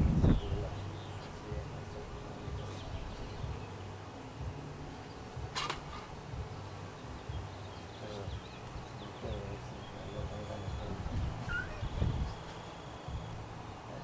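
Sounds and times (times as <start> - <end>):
honeybees buzzing: 0.0 - 14.0
faint bird chirps: 4.9 - 13.5.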